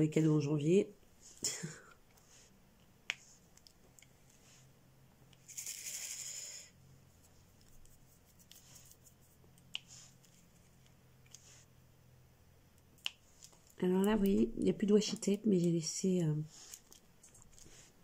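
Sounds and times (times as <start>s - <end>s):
rustling rattle: 5.4s - 6.6s.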